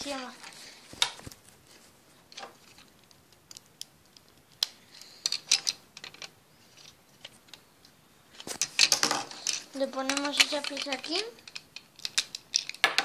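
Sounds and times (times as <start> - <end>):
plastic bricks clicking: 8.4 - 13.0.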